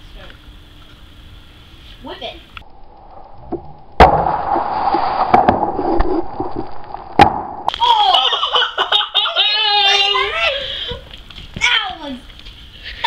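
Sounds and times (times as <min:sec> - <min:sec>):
kids shrieking: 0:09.2 - 0:10.8.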